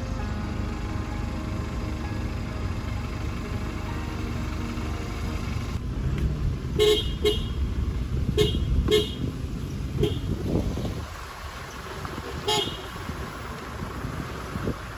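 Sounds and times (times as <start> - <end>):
truck engine rumble: 0.0 - 14.9
car horn beeps: 6.8 - 7.6, 8.4 - 9.3, 10.0 - 10.4, 12.4 - 13.0.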